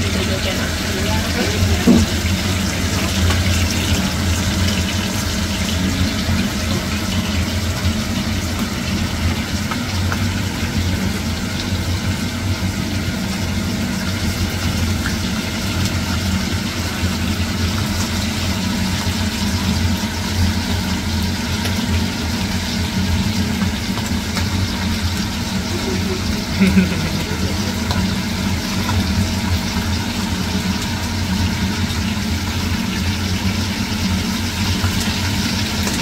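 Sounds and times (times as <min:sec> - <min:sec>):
fish sizzling in hot oil: 0:00.0 - 0:36.0
knock: 0:01.8 - 0:02.2.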